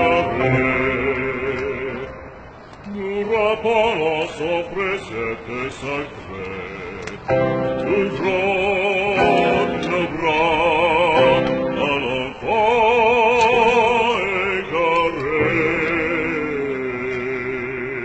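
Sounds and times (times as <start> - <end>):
classical accompaniment: 0.0 - 2.4, 7.3 - 17.2
operatic voice singing: 0.0 - 18.0.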